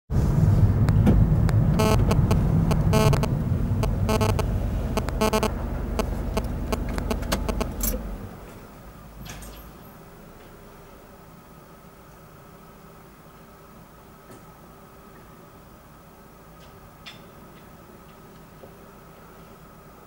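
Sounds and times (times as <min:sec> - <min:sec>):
car road and engine noise: 0:00.1 - 0:12.7
short buzzing tone: 0:01.6 - 0:08.0.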